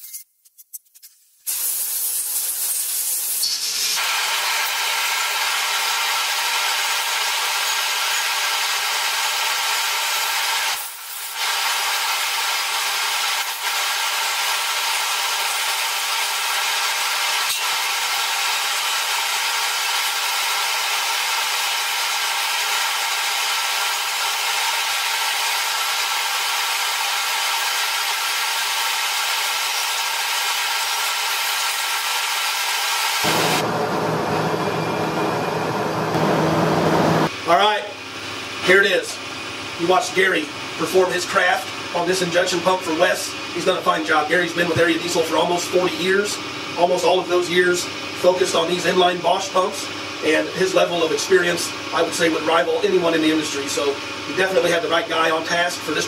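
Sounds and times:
aerosol spray can hissing: 0:01.4 - 0:04.0
exhaust fan rushing: 0:33.2 - 0:54.9.

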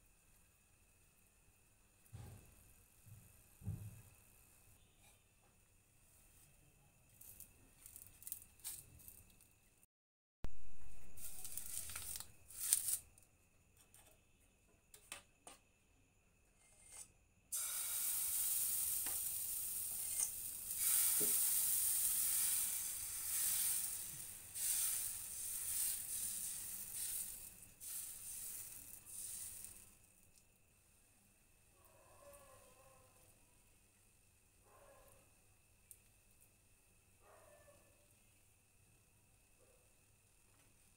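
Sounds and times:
batter sizzling in a pan: 0:11.0 - 0:13.0, 0:17.5 - 0:30.4.

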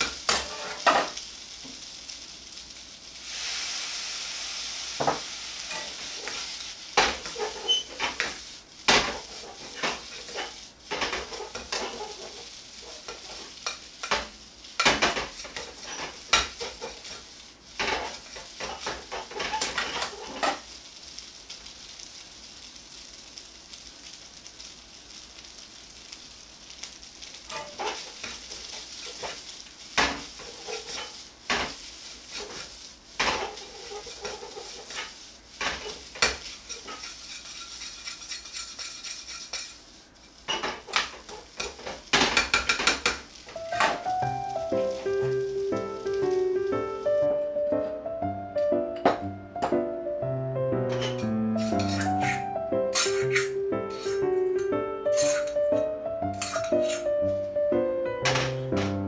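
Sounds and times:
sauce hissing in hot pan: 0:00.0 - 0:47.6, 0:50.1 - 0:57.7
rice sizzling in a wok: 0:00.0 - 0:59.0
metal ladle scraping and clanking: 0:32.3 - 0:39.8, 0:50.9 - 0:57.1.

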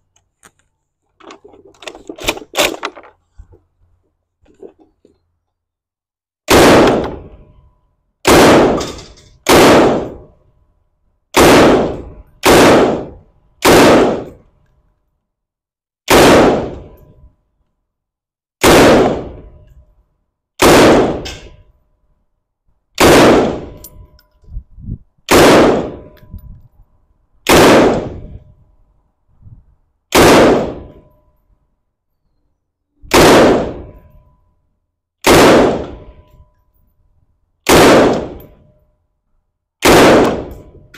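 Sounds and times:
gunshot echo: 0:06.5 - 0:07.4, 0:08.2 - 0:10.3, 0:11.4 - 0:14.4, 0:16.1 - 0:17.0, 0:18.6 - 0:19.6, 0:20.6 - 0:21.6, 0:23.0 - 0:23.8, 0:25.3 - 0:26.1, 0:27.5 - 0:28.4, 0:30.1 - 0:31.0, 0:33.1 - 0:34.0, 0:35.2 - 0:36.2, 0:37.7 - 0:38.6, 0:39.8 - 0:40.7
rifle single shots: 0:06.5 - 0:07.4, 0:08.2 - 0:10.3, 0:11.3 - 0:14.4, 0:16.1 - 0:17.0, 0:18.6 - 0:19.5, 0:20.6 - 0:21.6, 0:23.0 - 0:23.8, 0:25.3 - 0:26.1, 0:27.4 - 0:28.3, 0:30.1 - 0:31.0, 0:33.1 - 0:34.0, 0:35.2 - 0:36.2, 0:37.6 - 0:38.6, 0:39.8 - 0:40.8.

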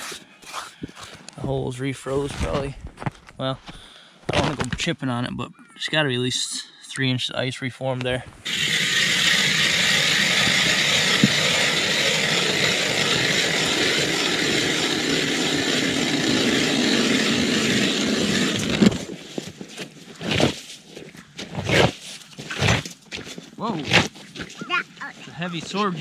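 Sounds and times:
ice auger grinding through ice: 0:00.0 - 0:01.2, 0:08.4 - 0:20.8, 0:21.4 - 0:26.0.

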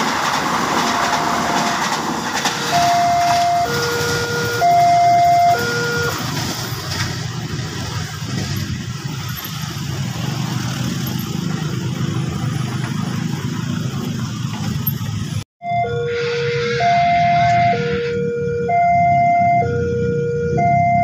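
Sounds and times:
level-crossing alarm two-tone: 0:00.8 - 0:06.2, 0:15.6 - 0:21.0.

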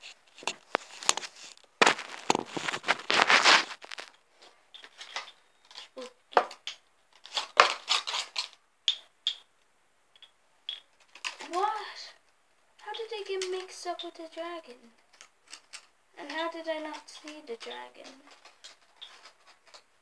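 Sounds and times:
paper rustling and crinkling: 0:00.0 - 0:04.2, 0:07.2 - 0:08.6, 0:16.9 - 0:19.9.

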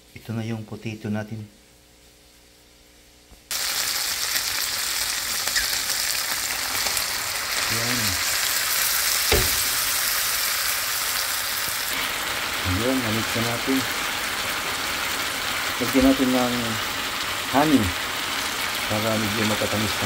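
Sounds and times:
food sizzling in a pan: 0:03.5 - 0:20.0
sharp knock: 0:09.3 - 0:09.8.

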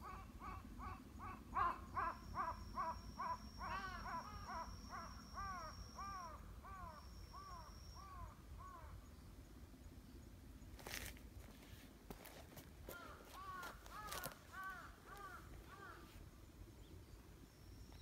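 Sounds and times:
crow cawing: 0:00.0 - 0:09.0, 0:12.9 - 0:16.2.

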